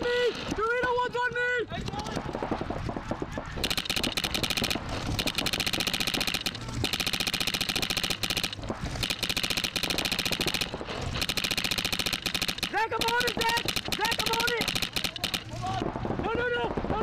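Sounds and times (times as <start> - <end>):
paintball marker rapid firing: 3.6 - 15.8.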